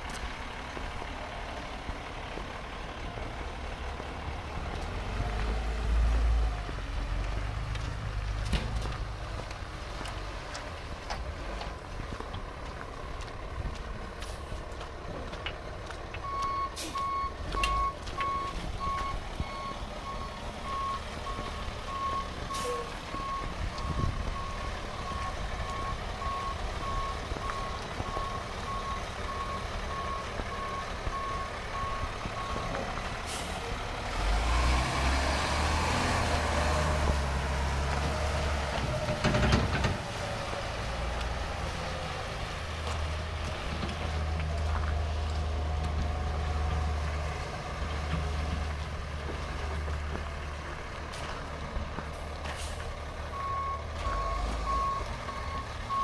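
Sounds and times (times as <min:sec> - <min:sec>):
diesel engine running: 0:00.0 - 0:56.0
truck backup alarm beeping: 0:16.2 - 0:33.6, 0:53.1 - 0:56.0.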